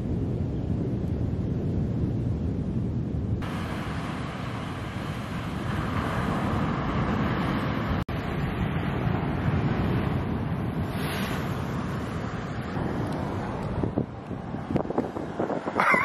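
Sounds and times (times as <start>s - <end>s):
wind buffeting microphone: 0.0s - 16.0s
ocean surf breaking: 3.4s - 16.0s.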